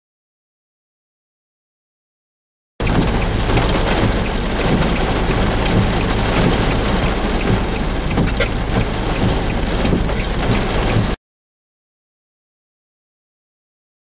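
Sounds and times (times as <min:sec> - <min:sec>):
heavy rain pattering: 0:02.8 - 0:11.2.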